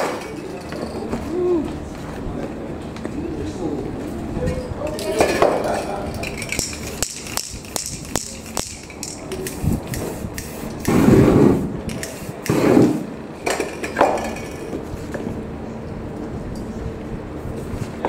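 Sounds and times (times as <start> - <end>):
metal cans clicking and knocking: 5.2 - 9.5
spray can hissing: 6.6 - 13.0.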